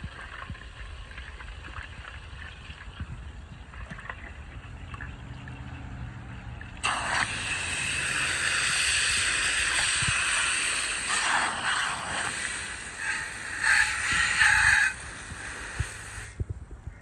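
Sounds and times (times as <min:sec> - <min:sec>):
hose water pouring into metal container: 0:00.0 - 0:03.2, 0:06.8 - 0:16.4
water spilling over: 0:00.0 - 0:16.4.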